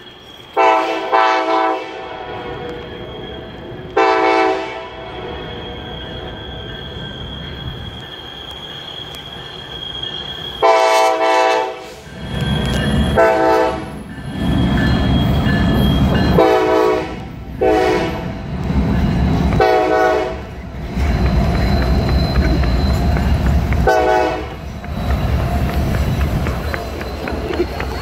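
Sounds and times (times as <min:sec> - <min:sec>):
wheels squealing: 0:00.0 - 0:01.2, 0:02.0 - 0:11.0, 0:11.7 - 0:28.0
train rumbling past: 0:00.0 - 0:28.0
locomotive air horn blasts: 0:00.6 - 0:02.9, 0:04.0 - 0:05.3, 0:10.6 - 0:12.0, 0:13.2 - 0:14.0, 0:16.4 - 0:18.3, 0:19.6 - 0:20.6, 0:23.8 - 0:24.6.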